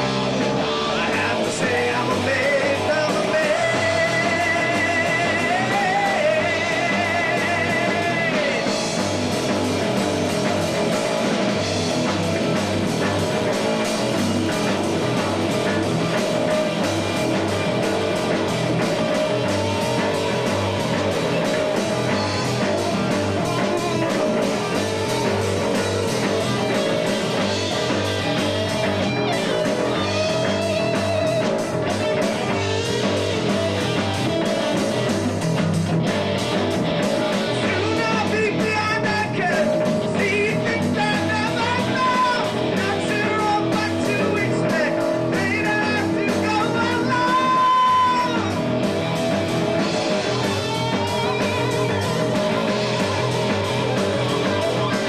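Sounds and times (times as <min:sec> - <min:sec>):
drum kit beat: 0:00.0 - 0:55.0
electric bass: 0:00.0 - 0:55.0
electric guitar: 0:00.0 - 0:55.0.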